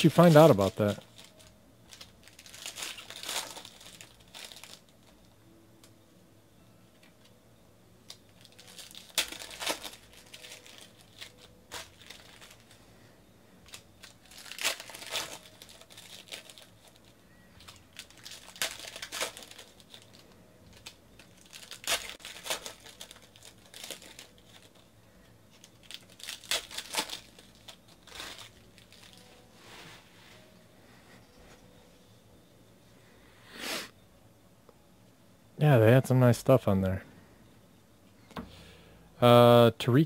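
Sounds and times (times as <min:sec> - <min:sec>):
foil wrappers tearing and crinkling: 0:00.0 - 0:05.2, 0:08.1 - 0:12.9, 0:13.6 - 0:29.4.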